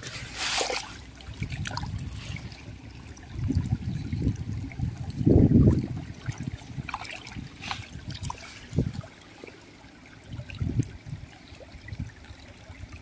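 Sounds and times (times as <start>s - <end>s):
stream water trickling: 0.0s - 13.0s
dull low thumps: 1.2s - 9.1s.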